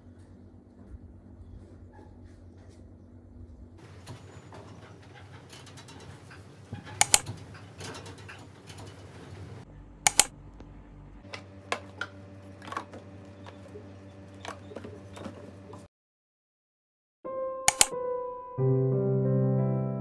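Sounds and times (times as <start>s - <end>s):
low steady hum: 0.0s - 15.9s
loud double clicks: 7.0s - 7.2s, 10.1s - 10.3s, 17.7s - 17.9s
sharp clicks and taps: 7.0s - 7.3s, 10.1s - 10.3s, 17.7s - 17.9s.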